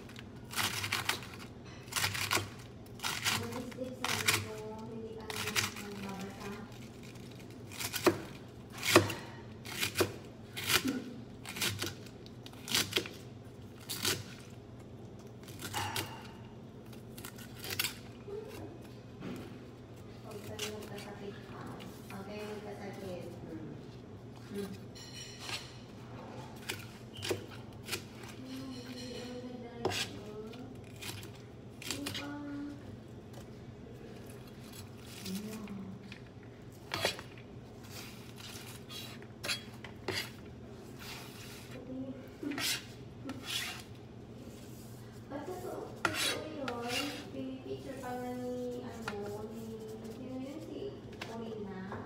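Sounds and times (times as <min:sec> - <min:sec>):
knife slicing cabbage: 0:00.0 - 0:14.5, 0:15.4 - 0:18.9, 0:20.2 - 0:21.2, 0:26.3 - 0:32.4, 0:36.8 - 0:41.8, 0:42.4 - 0:50.2.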